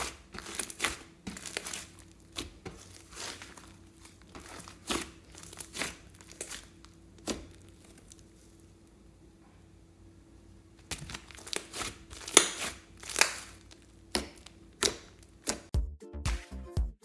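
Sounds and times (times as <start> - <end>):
slime squishing and crackling: 0.0 - 8.9, 10.8 - 15.7
music with steady beat: 15.7 - 17.0.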